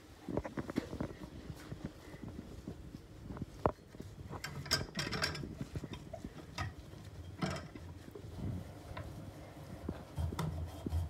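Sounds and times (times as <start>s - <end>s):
cloth rubbing a metal faucet: 1.0s - 11.0s.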